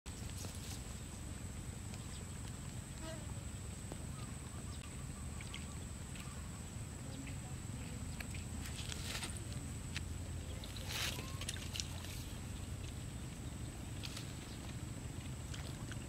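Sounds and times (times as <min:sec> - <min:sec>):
faint bird chirps: 0:00.1 - 0:08.5.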